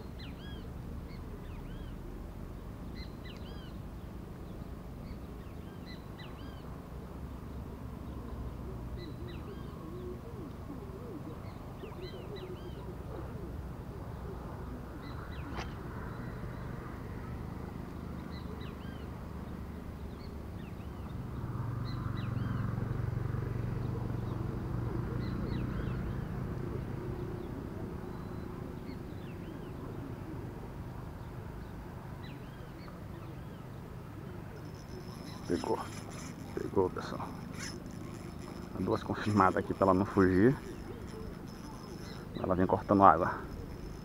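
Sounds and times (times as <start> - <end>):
birds chirping: 23.8 - 44.0.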